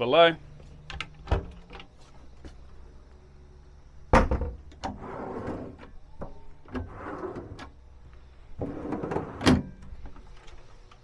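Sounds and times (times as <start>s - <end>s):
drawers sliding on runners: 4.8s - 5.9s, 6.7s - 7.8s, 8.6s - 9.7s.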